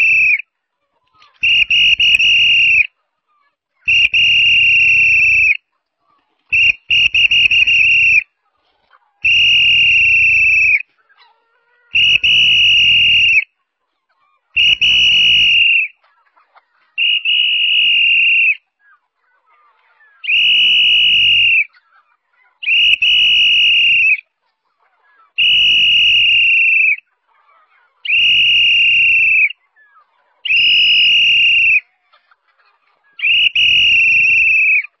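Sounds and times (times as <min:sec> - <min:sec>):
whistle blasts: 0:00.0 - 0:00.4, 0:01.4 - 0:02.9, 0:03.9 - 0:05.6, 0:06.5 - 0:08.2, 0:09.2 - 0:10.8, 0:11.9 - 0:13.5, 0:14.6 - 0:16.0, 0:17.0 - 0:18.6, 0:20.2 - 0:21.7, 0:22.6 - 0:24.2, 0:25.4 - 0:27.0, 0:28.1 - 0:29.6, 0:30.5 - 0:31.8, 0:33.2 - 0:34.9.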